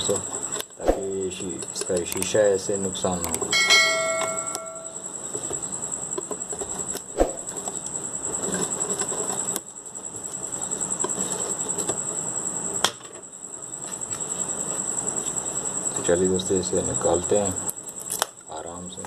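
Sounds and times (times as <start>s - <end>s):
high-pitched whine: 3.5s - 6.0s.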